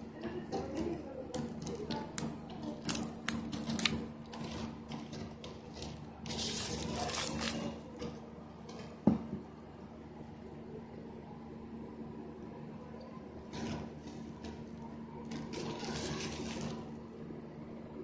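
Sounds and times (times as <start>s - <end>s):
plastic wrapping crinkling: 2.6s - 4.7s, 6.3s - 7.8s, 15.3s - 17.0s.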